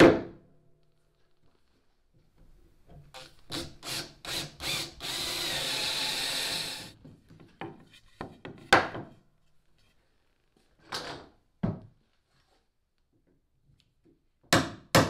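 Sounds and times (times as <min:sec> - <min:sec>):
cordless drill boring into wood: 0:03.2 - 0:06.9.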